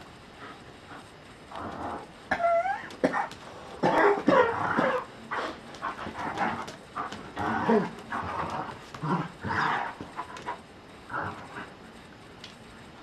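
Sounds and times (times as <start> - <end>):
dogs barking and growling: 1.5 - 11.7.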